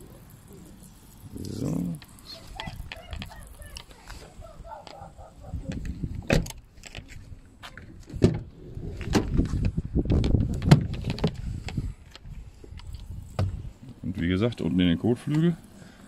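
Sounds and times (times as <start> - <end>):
hand pump sprayer pumping: 0.0 - 6.2.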